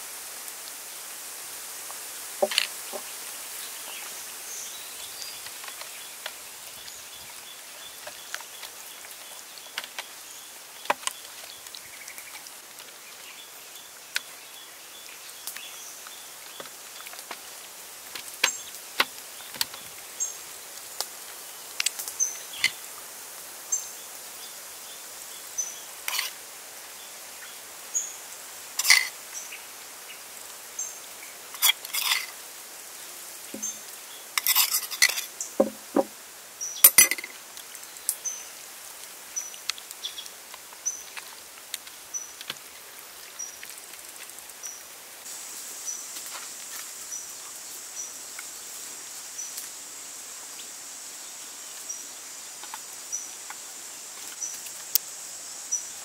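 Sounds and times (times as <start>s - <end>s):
outdoor hiss: 0.0s - 56.0s
metal spoon clinking on metal: 34.4s - 35.3s, 36.9s - 37.3s.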